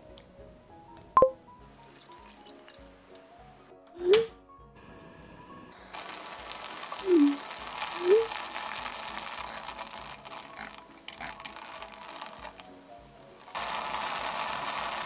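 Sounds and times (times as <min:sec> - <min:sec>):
sauce bubbling and sizzling: 0:01.7 - 0:03.0, 0:04.8 - 0:15.0.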